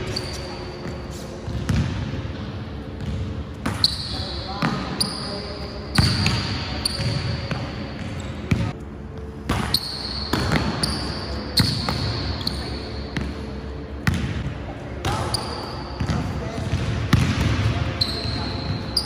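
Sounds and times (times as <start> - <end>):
basketball hitting backboard and rim: 1.5 - 2.1.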